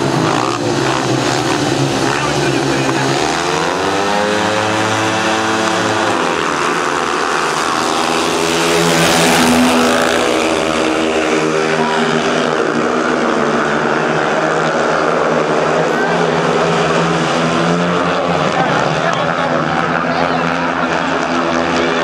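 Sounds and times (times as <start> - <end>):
motorcycle engines racing: 0.0 - 22.0.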